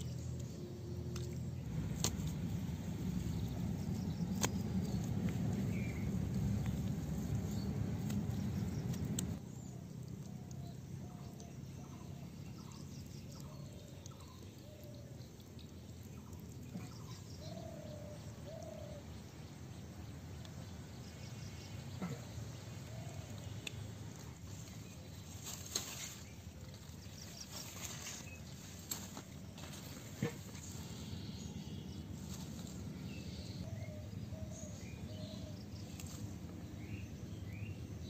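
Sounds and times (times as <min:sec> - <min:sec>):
low rumbling noise: 0:00.0 - 0:09.7.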